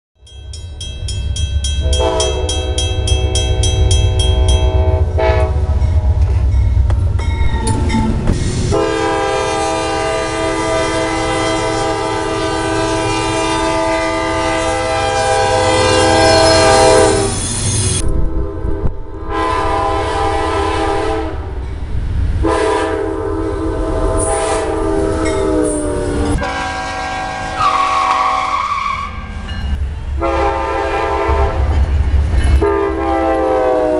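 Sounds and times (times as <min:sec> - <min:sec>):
low rumble of passing train: 0:00.2 - 0:33.9
locomotive air horn blasts: 0:01.8 - 0:06.2, 0:08.7 - 0:17.4, 0:18.0 - 0:21.5, 0:22.4 - 0:29.3, 0:30.2 - 0:31.8, 0:32.6 - 0:33.9.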